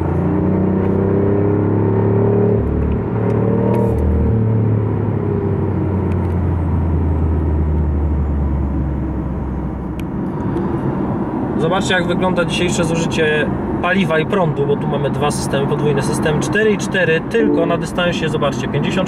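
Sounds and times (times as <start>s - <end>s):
car drivetrain drone: 0.0s - 11.6s.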